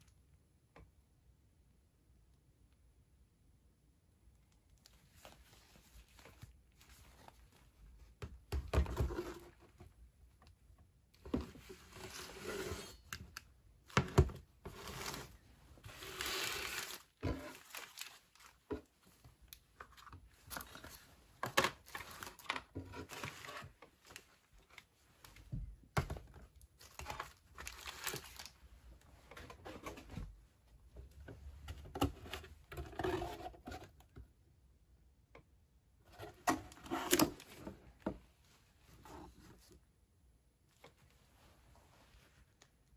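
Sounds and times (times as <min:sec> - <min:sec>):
food packets crinkling: 0:14.9 - 0:18.6, 0:26.8 - 0:28.6.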